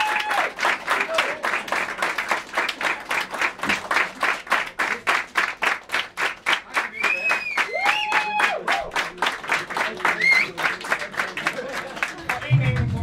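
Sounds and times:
person cheering: 0.0 - 0.6, 7.6 - 8.9
crowd applauding: 0.0 - 13.0.

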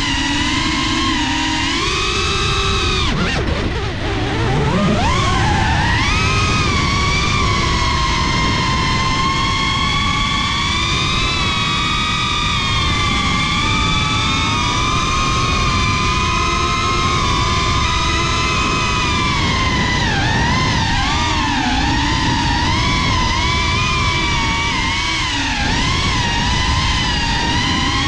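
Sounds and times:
propeller wash rushing: 0.0 - 28.0
quadcopter motors whining: 0.0 - 28.0.

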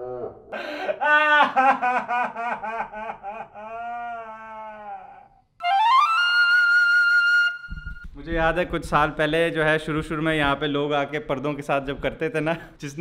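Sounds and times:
man wailing theatrically: 0.0 - 5.4
flute music: 5.6 - 8.3.

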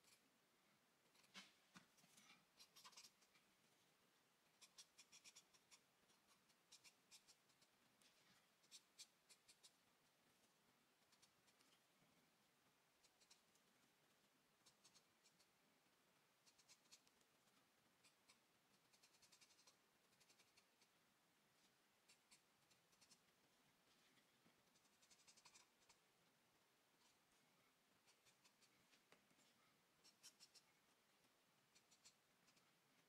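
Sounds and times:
charcoal pencil scratching paper: 4.6 - 9.7, 18.0 - 20.9, 24.2 - 26.0.

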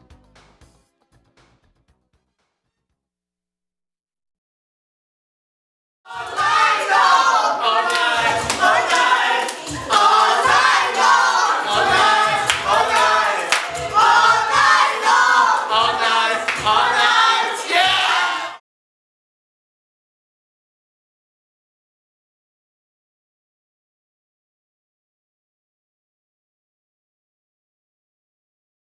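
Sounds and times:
group singing a cappella: 6.1 - 18.6
hand clapping: 7.8 - 17.8.

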